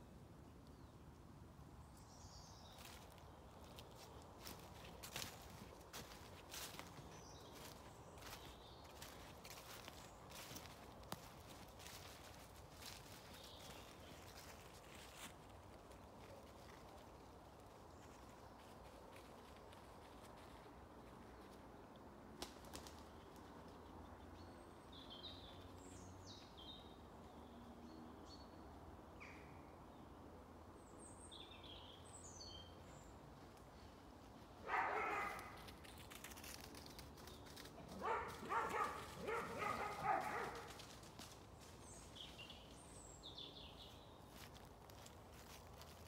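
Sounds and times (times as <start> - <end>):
dog barking: 34.6 - 35.6, 38.0 - 40.7.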